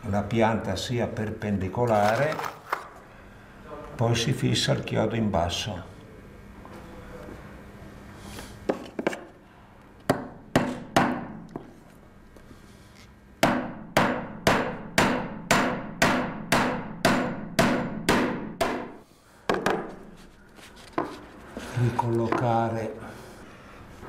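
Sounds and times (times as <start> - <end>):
hammer driving nail into wood: 10.1 - 11.3, 13.4 - 19.9.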